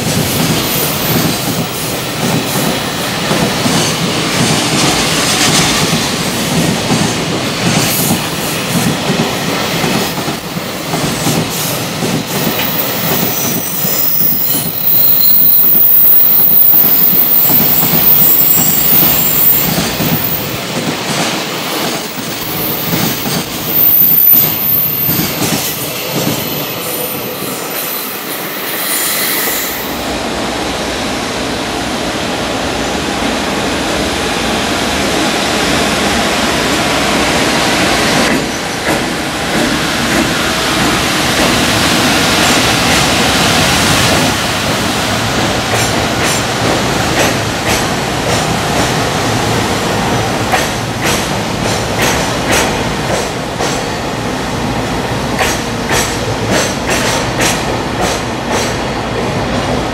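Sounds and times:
train wheels rumbling on rails: 0:00.0 - 0:59.9
high wheel squeal: 0:26.5 - 0:30.0.

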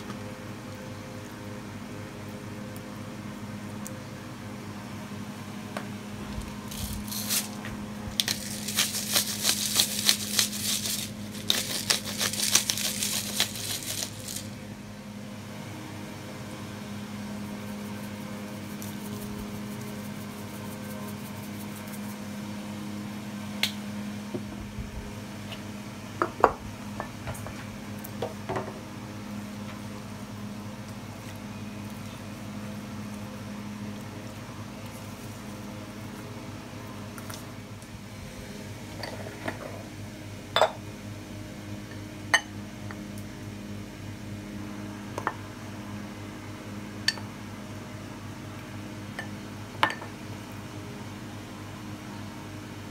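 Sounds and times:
steady low hum: 0:00.0 - 0:52.9
salt and pepper rattling: 0:06.7 - 0:14.6.

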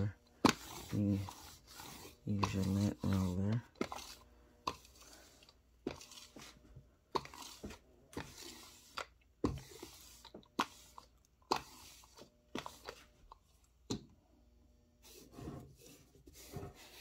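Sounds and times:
lint roller rasping over fabric: 0:00.0 - 0:13.1.

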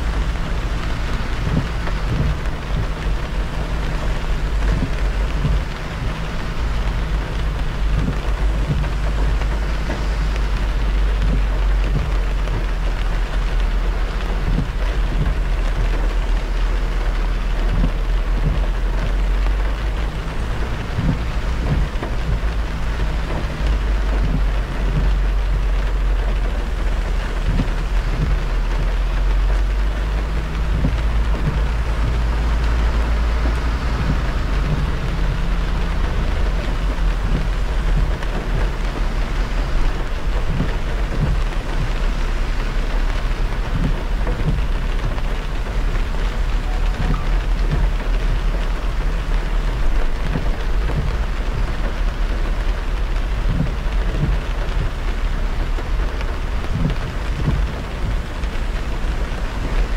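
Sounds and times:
rain and wet tyres hissing: 0:00.0 - 0:59.9
road rumble: 0:00.0 - 0:59.9
low thumps: 0:29.6 - 0:55.0.

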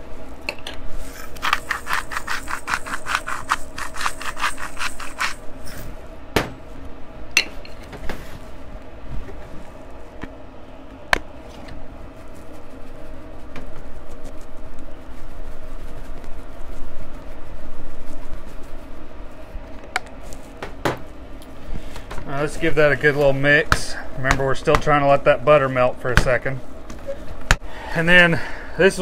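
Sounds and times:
salt grinder rasping: 0:01.2 - 0:05.4.

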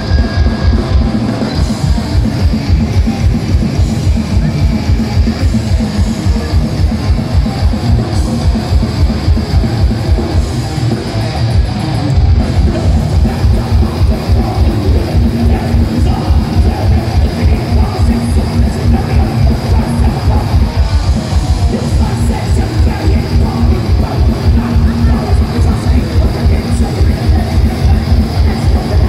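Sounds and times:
bass guitar: 0:00.0 - 0:29.0
distorted electric guitars: 0:00.0 - 0:29.0
fast drumming: 0:00.0 - 0:29.0.

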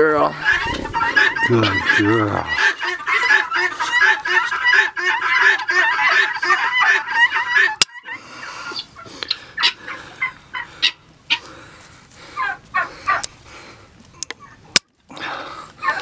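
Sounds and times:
guinea fowl chattering calls: 0:00.2 - 0:11.5, 0:15.8 - 0:16.0.

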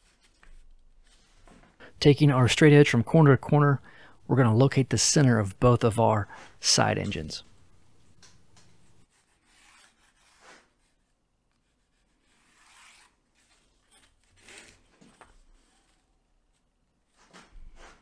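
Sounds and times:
pencil scratching along straight edge: 0:09.0 - 0:14.7.

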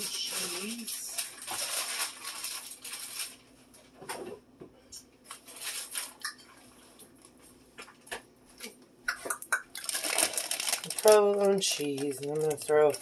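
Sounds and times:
plastic bags crinkling: 0:00.0 - 0:03.9, 0:05.3 - 0:06.4, 0:09.2 - 0:13.0.

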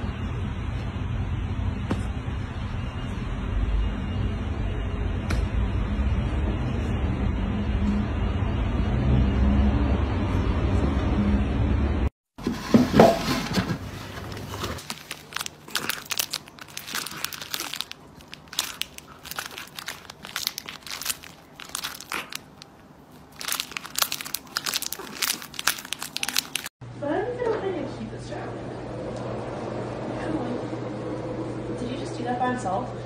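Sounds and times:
plastic pouch crinkling: 0:14.4 - 0:26.7.

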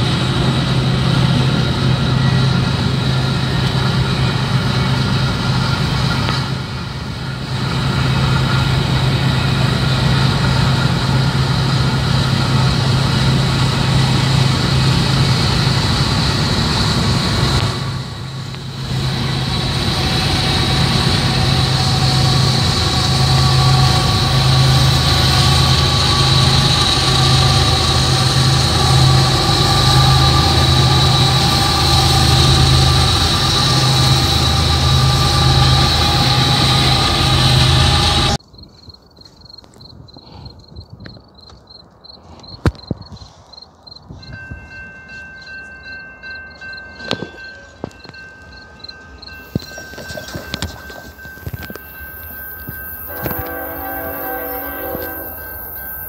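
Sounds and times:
diesel locomotives: 0:00.0 - 0:56.0
thin high whine: 0:49.3 - 0:56.0.

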